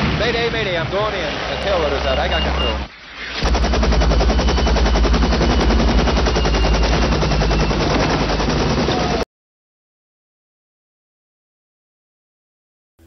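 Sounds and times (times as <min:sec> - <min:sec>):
helicopter rotor chopping: 0:03.4 - 0:09.2.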